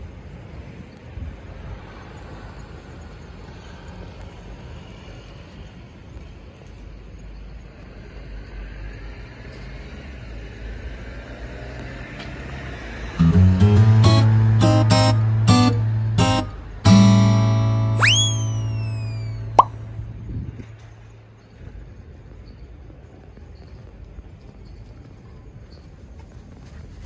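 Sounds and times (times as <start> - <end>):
road traffic rumble: 0.0 - 27.0
strummed acoustic guitar music: 13.2 - 19.9.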